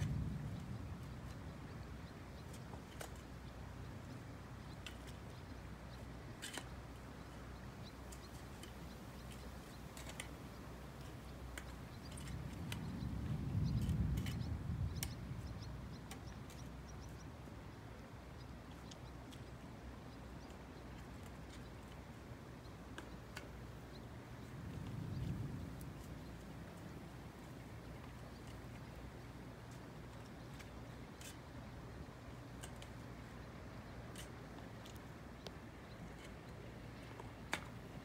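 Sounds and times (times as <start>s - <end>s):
distant thunder rumble: 0.0s - 2.3s, 12.3s - 16.1s, 24.4s - 28.2s
faint scattered clicks: 0.0s - 38.0s.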